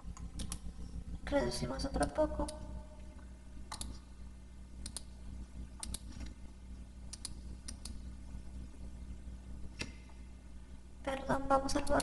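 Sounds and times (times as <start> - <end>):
steady low hum: 0.0 - 12.0
computer mouse clicks: 0.2 - 0.7, 3.7 - 4.0, 4.8 - 5.1, 5.8 - 6.4, 7.1 - 8.0.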